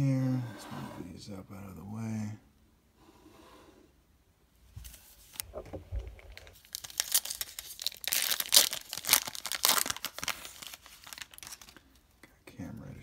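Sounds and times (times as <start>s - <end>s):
cellophane wrapper crinkling: 5.4s - 12.1s.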